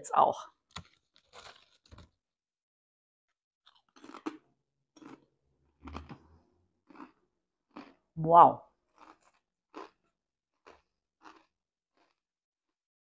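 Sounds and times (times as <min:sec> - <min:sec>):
person crunching potato chips: 0:00.5 - 0:02.2, 0:03.6 - 0:04.4, 0:05.0 - 0:06.2, 0:06.8 - 0:08.1, 0:08.8 - 0:12.3
chip bag rustling: 0:00.7 - 0:02.2.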